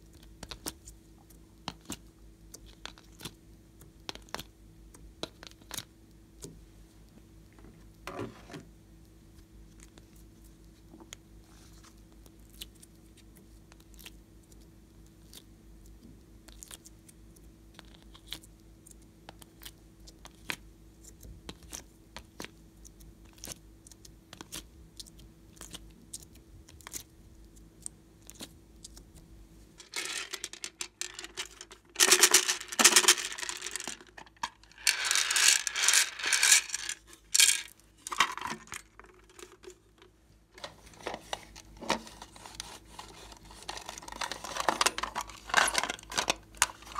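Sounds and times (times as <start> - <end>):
faint steady hum: 0.0 - 46.9
plastic case clattering and crinkling: 29.8 - 46.9.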